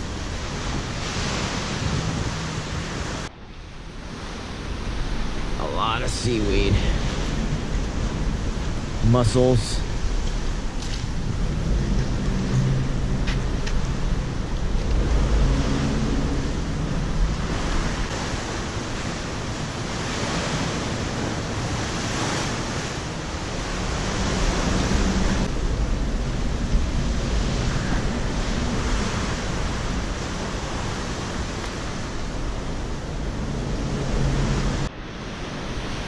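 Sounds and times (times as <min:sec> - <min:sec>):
water rushing: 0:00.0 - 0:36.0
wind buffeting microphone: 0:00.0 - 0:36.0.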